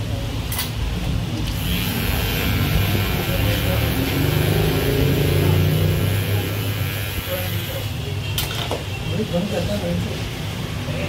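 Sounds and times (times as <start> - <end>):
beard trimmer buzzing: 1.5 - 7.9.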